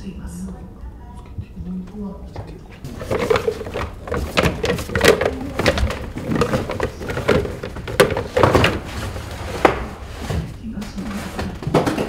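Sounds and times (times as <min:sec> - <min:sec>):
doll parts clattering in a box: 0:02.8 - 0:12.0.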